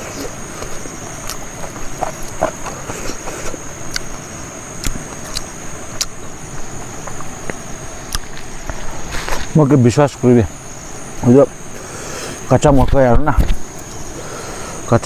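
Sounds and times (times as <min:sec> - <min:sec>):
person chewing: 0:00.0 - 0:04.1, 0:04.8 - 0:06.2
high-pitched insect drone: 0:00.0 - 0:15.0.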